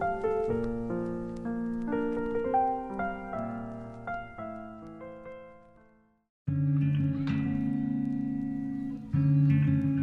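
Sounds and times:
guitar background music: 0:06.5 - 0:10.0.

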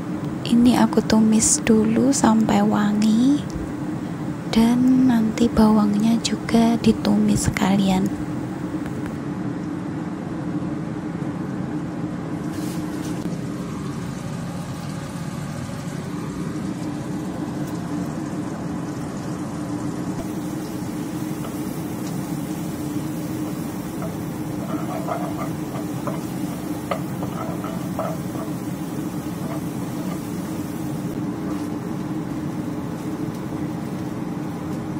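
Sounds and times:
stove and kitchen fan humming: 0:00.0 - 0:34.9
shrimp and garlic frying in oil: 0:12.4 - 0:34.9.

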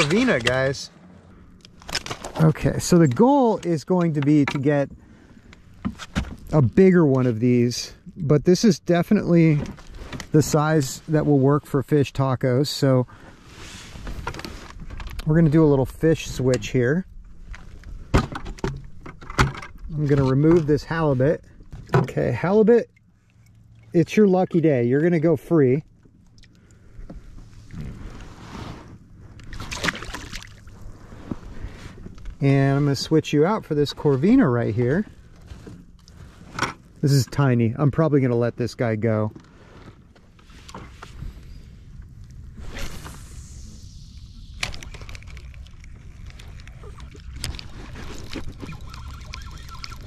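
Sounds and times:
rustling in a boat: 0:00.0 - 0:08.0, 0:09.4 - 0:42.9, 0:44.7 - 0:50.0
fish splashing into water: 0:29.4 - 0:30.8
low rumble: 0:40.1 - 0:50.0.

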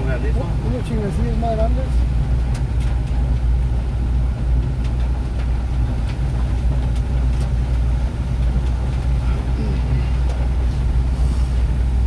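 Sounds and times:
vehicle engine rumble from cabin: 0:00.0 - 0:12.0
tyres hissing on wet pavement: 0:09.5 - 0:11.9.

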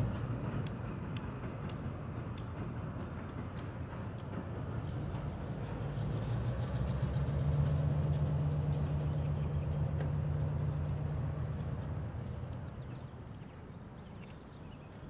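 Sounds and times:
diesel locomotive engine drone: 0:00.0 - 0:15.0.

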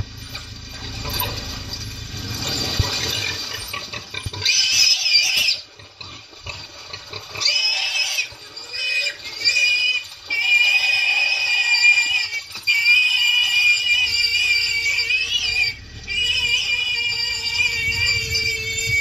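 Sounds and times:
warthog squealing: 0:02.3 - 0:19.0.

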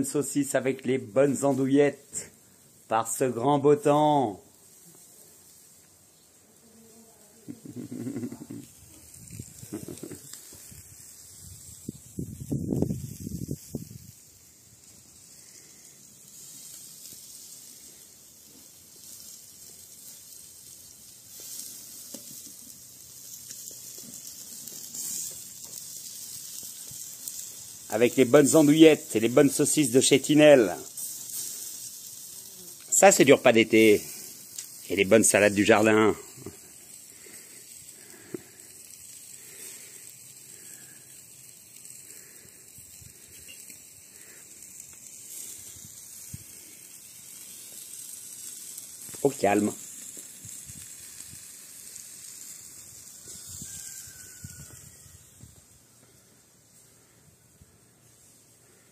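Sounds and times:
food sizzling on a grill: 0:00.0 - 0:58.9.

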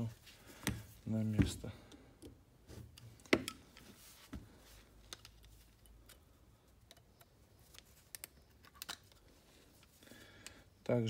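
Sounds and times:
small metallic clicks: 0:05.1 - 0:10.6.

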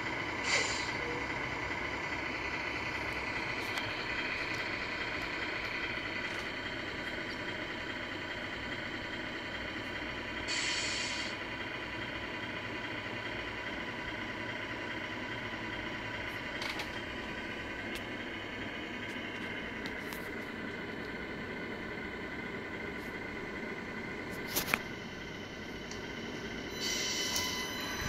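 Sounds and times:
diesel engine idle sound: 0:00.0 - 0:28.0
short hiss: 0:10.5 - 0:11.4.

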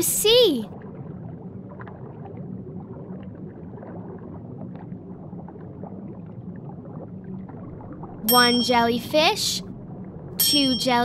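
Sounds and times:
underwater rumble: 0:00.7 - 0:08.3, 0:09.6 - 0:10.4.

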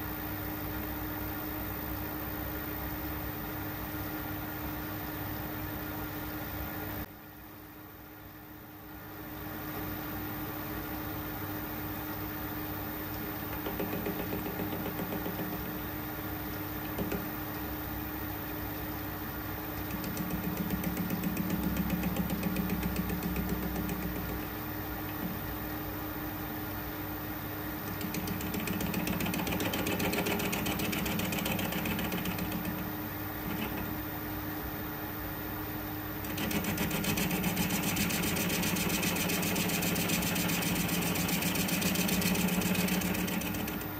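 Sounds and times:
metal lathe motor and gear hum: 0:13.0 - 0:26.4, 0:27.8 - 0:34.3, 0:36.1 - 0:43.9.

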